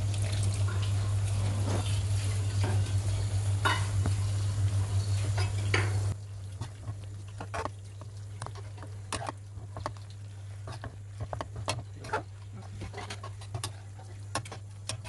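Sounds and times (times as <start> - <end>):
metal spatula scraping a pan: 8.4 - 15.0.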